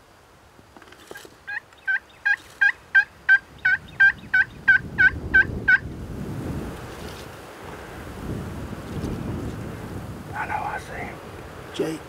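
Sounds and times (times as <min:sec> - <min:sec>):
turkey yelps: 0:01.5 - 0:05.8.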